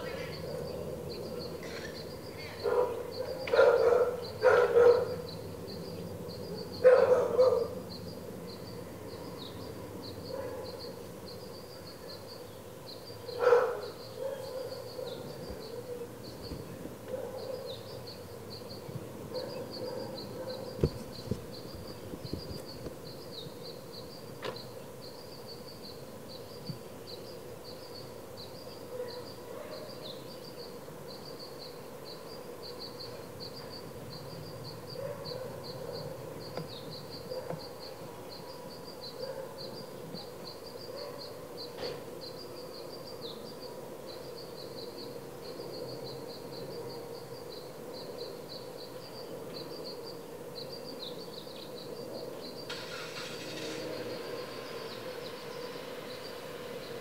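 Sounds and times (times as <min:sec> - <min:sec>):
faint high-pitched chirping: 0:00.0 - 0:57.0
dog barking: 0:02.6 - 0:05.2, 0:06.8 - 0:07.8, 0:10.3 - 0:10.8, 0:13.4 - 0:15.2, 0:17.1 - 0:17.8, 0:19.3 - 0:20.7, 0:28.9 - 0:29.9, 0:35.0 - 0:36.2, 0:39.2 - 0:39.6, 0:40.9 - 0:41.4.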